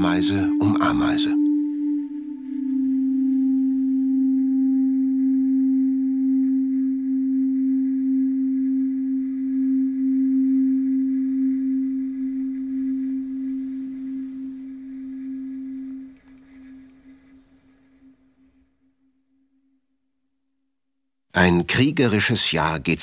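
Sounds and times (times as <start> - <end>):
sustained low drone: 0.0 - 18.1
faint higher tones: 0.0 - 20.0.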